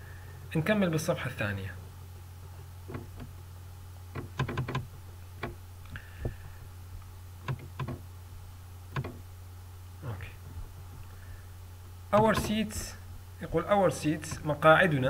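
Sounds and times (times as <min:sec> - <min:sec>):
low electrical hum: 0:00.0 - 0:15.0
computer mouse clicks: 0:04.2 - 0:04.8.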